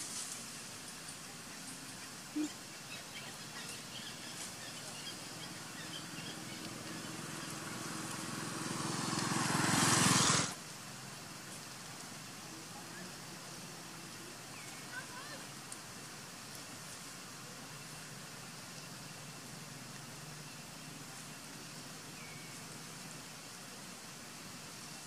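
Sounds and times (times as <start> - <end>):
faint outdoor ambience: 0.0 - 25.0.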